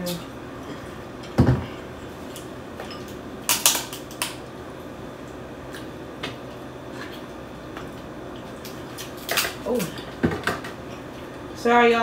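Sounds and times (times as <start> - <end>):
crab shell cracking: 3.5 - 4.4.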